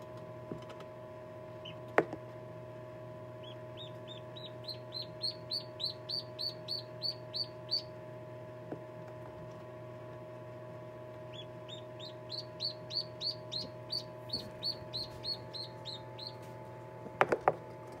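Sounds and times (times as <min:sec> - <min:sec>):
incubator humming: 0:00.0 - 0:18.0
duckling peeping: 0:01.5 - 0:01.9, 0:03.3 - 0:08.0, 0:11.1 - 0:16.8.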